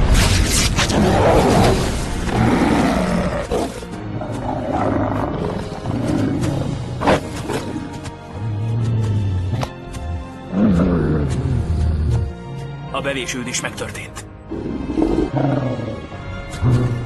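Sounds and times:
film score music: 0.0s - 17.0s
wolves growling and snarling: 0.8s - 12.4s, 14.5s - 17.0s.

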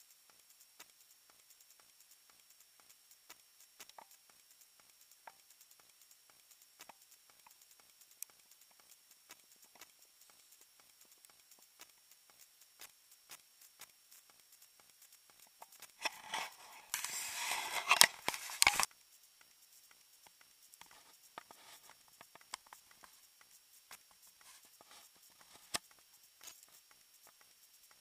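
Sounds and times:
faint clicks: 0.0s - 28.0s
close rustling and crackling: 15.6s - 18.9s, 20.7s - 28.0s.

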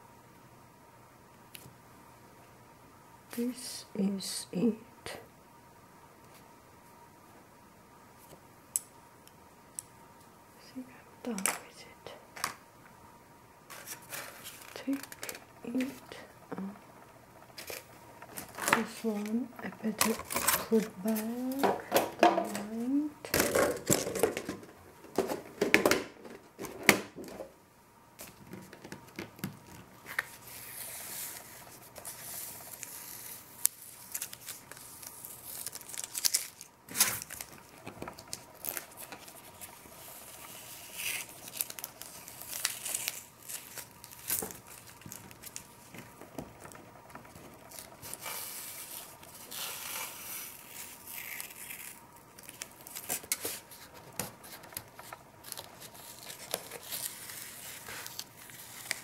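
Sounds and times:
masking tape ripping off paper: 30.1s - 37.6s, 38.2s - 45.7s, 47.7s - 59.0s.

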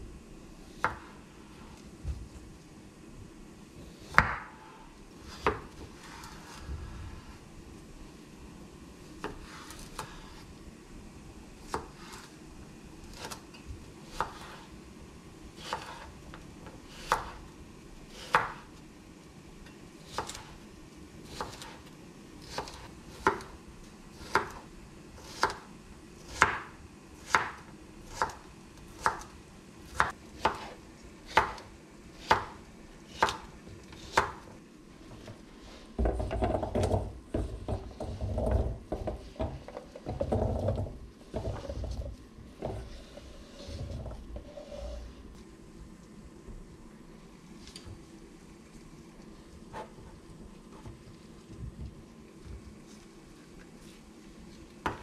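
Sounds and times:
knife chopping on wooden board: 4.1s - 4.6s, 16.9s - 17.4s, 18.2s - 18.7s, 22.4s - 23.5s, 24.2s - 24.6s, 25.2s - 25.7s, 26.3s - 28.4s, 29.9s - 32.6s, 33.2s - 34.5s
food scraped into steel bowl: 42.8s - 45.3s.

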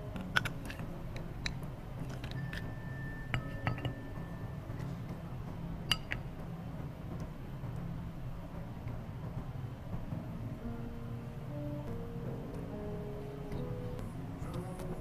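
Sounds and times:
quiet background music: 0.0s - 15.0s
tableware clinking: 1.4s - 4.2s, 5.9s - 6.3s.

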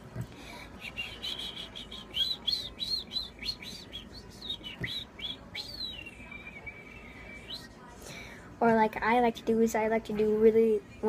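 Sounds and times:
boy whistling a tune: 0.8s - 7.7s.

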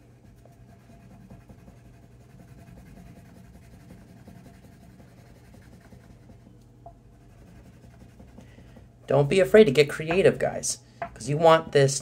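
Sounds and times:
crayon scratching on paper: 0.0s - 6.5s, 7.1s - 8.8s
low steady hum: 0.0s - 12.0s.

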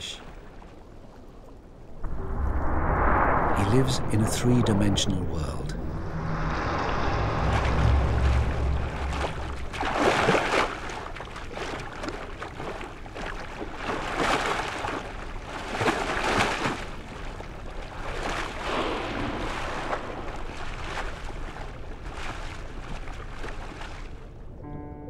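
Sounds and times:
water rushing underwater: 1.8s - 14.2s, 17.0s - 22.7s.

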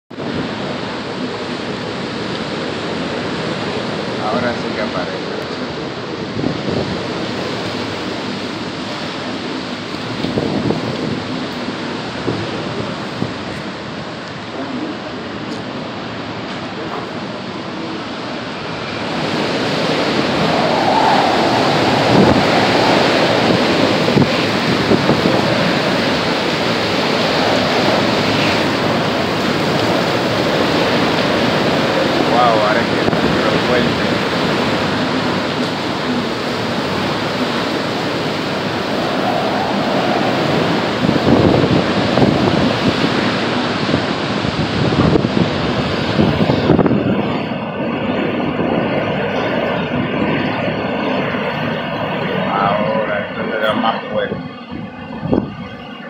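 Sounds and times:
driving rain: 0.1s - 56.0s
strong wind rushing: 0.1s - 56.0s.

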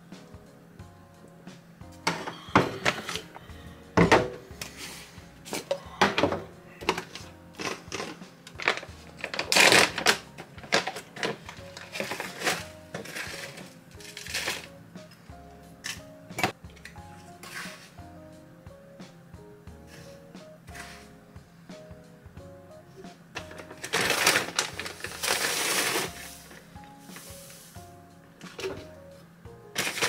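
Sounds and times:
quiet background music: 0.0s - 30.0s
plastic containers clicking: 5.5s - 14.7s, 23.4s - 26.1s
foil pouch crinkling: 7.0s - 14.7s, 23.5s - 26.6s, 29.8s - 30.0s.

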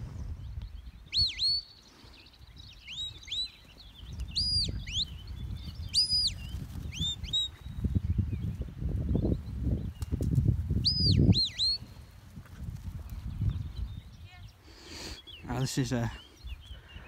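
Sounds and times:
whistled commands: 1.1s - 1.7s, 10.8s - 11.9s.

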